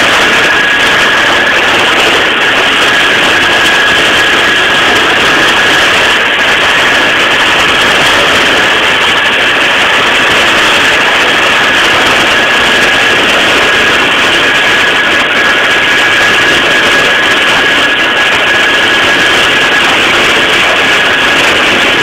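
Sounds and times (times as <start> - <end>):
high mechanical whine: 0.0 - 22.0
tractor and baler din: 0.0 - 22.0.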